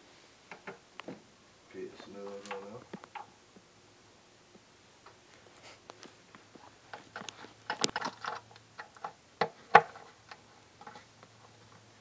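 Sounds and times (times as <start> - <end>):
small clicks and rustles: 2.0 - 3.6, 4.6 - 12.0.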